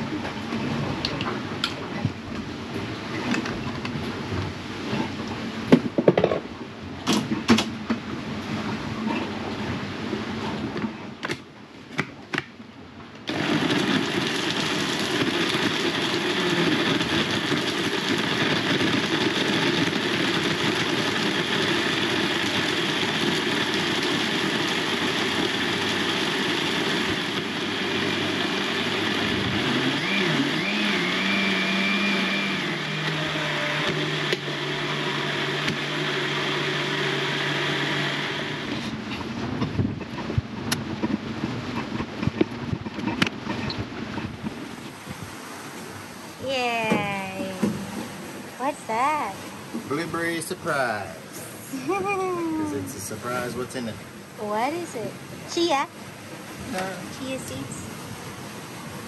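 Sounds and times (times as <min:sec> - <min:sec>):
countertop blender running: 0:13.3 - 0:39.0.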